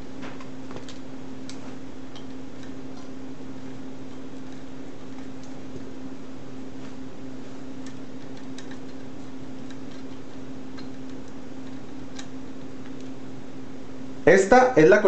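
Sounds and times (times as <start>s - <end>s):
steady low hum: 0.0s - 15.0s
wires and wire nut clicking: 0.4s - 3.2s, 4.0s - 5.7s, 7.7s - 13.2s.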